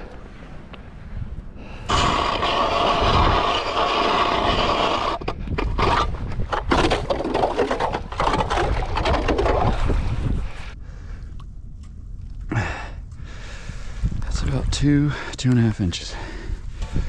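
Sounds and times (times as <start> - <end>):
hand ice auger grinding ice: 1.9 - 10.2.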